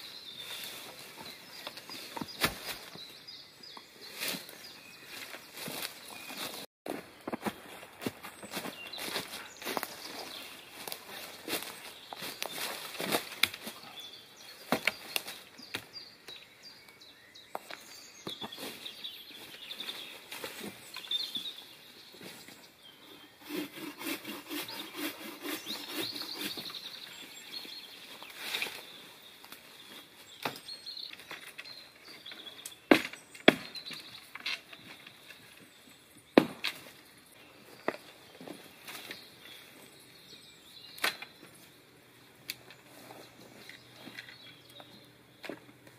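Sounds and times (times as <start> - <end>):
sticks and brush rustling: 0.0 - 15.9, 17.5 - 40.2, 40.8 - 45.9
faint birds chirping: 0.0 - 45.9
hatchet cutting saplings: 9.0 - 13.9, 14.6 - 16.0, 23.4 - 27.2, 40.9 - 41.6.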